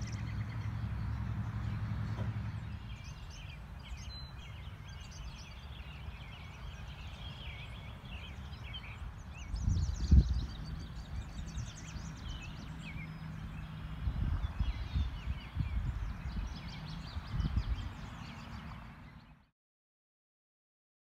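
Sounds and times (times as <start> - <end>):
wind rumbling on microphone: 0.0 - 19.3
birds chirping: 0.0 - 19.5.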